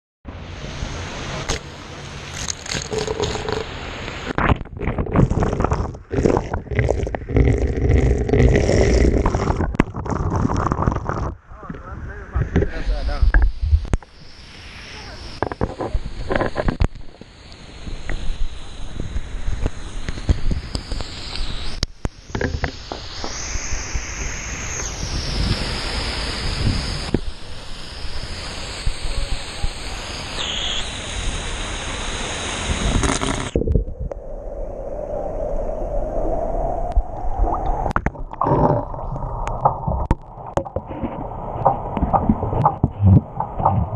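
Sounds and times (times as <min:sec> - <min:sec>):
fountain water rushing hiss: 0:00.4 - 0:09.8, 0:14.0 - 0:33.6
water splashing onto camera: 0:01.4 - 0:11.4, 0:37.4 - 0:43.9.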